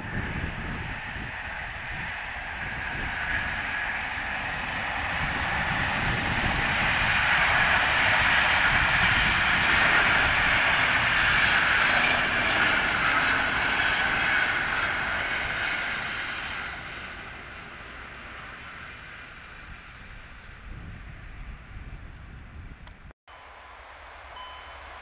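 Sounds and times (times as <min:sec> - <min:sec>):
passenger train rolling past: 0:00.0 - 0:22.2, 0:23.3 - 0:25.0.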